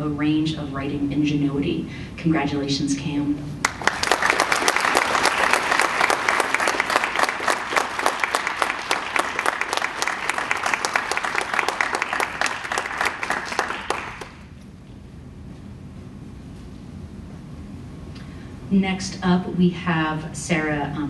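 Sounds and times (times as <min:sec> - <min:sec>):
audience applauding: 0:03.6 - 0:14.5.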